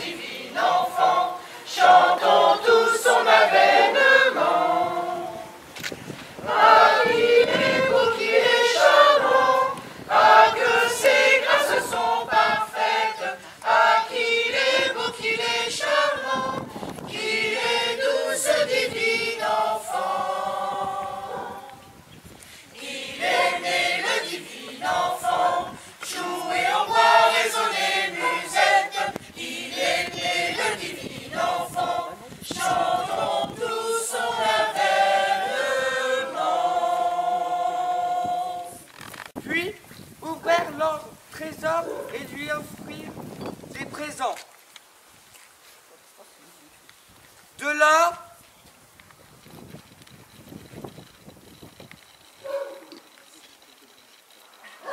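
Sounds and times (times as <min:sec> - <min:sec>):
choir singing: 0:00.0 - 0:05.6, 0:06.4 - 0:22.0, 0:22.7 - 0:38.9.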